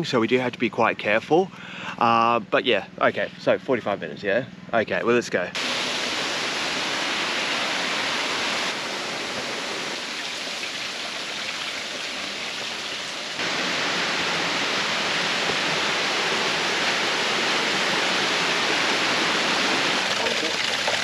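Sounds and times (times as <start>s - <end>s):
water rushing over rocks: 5.6s - 21.0s.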